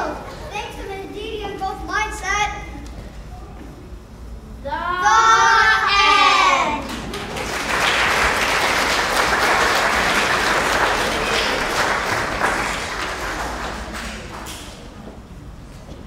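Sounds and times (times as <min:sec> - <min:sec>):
loud call by voices: 0:04.6 - 0:07.0
audience applauding: 0:06.8 - 0:14.9.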